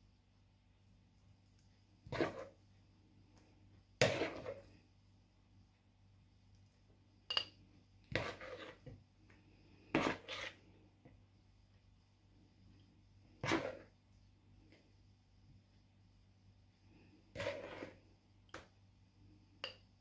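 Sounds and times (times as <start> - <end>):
spoon scraping a bowl: 2.0 - 2.6, 4.0 - 4.8, 7.3 - 9.0, 9.8 - 10.7, 13.4 - 14.0, 17.3 - 18.1
spoon clinking on glass jar: 7.3 - 7.6.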